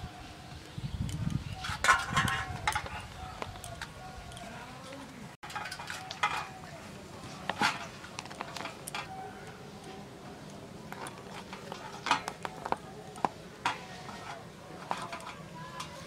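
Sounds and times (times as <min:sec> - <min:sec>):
clicks and clinks on steel plate: 0:01.6 - 0:03.0, 0:05.4 - 0:06.6, 0:10.9 - 0:16.0.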